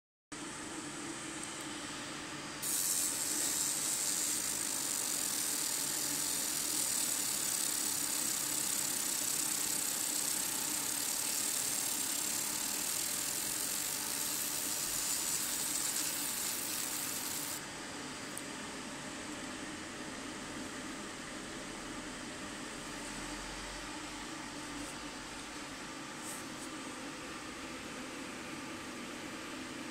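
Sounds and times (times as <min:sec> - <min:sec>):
laser high-pitched hiss: 0:02.6 - 0:17.6.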